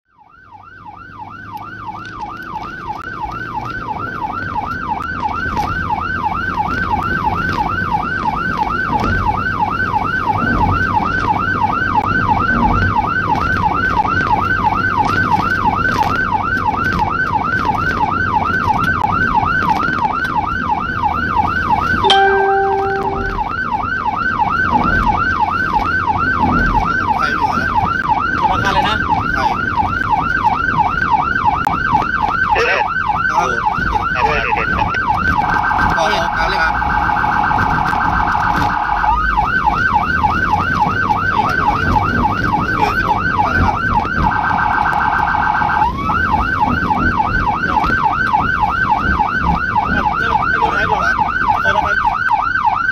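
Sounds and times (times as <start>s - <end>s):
engine and road noise: 0.1s - 52.9s
electronic siren yelping: 18.0s - 52.9s.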